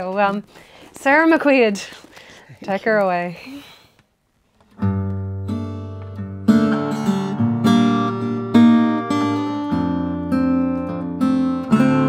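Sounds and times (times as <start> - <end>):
acoustic guitar chords: 4.7 - 12.0.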